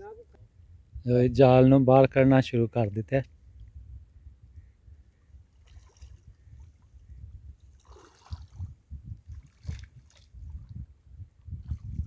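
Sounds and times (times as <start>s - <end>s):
river water splashing: 5.4s - 7.0s, 7.6s - 10.7s.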